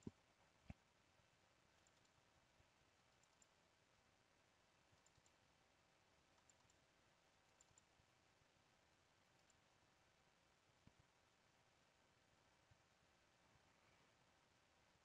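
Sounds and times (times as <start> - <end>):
computer mouse double-clicks: 1.8 - 2.2, 3.1 - 3.6, 5.0 - 5.4, 6.4 - 6.8, 7.5 - 7.9.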